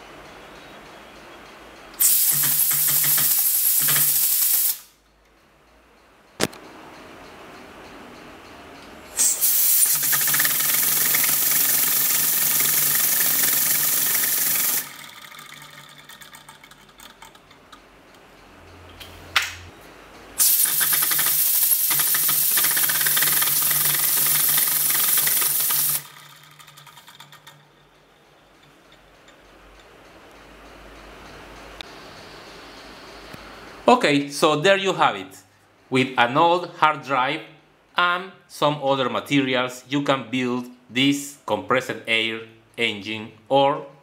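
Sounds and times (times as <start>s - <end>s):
small air engine clicking: 0.2s - 19.1s, 20.4s - 31.9s
compressed air hissing: 2.0s - 5.0s, 9.1s - 15.1s, 20.4s - 26.2s.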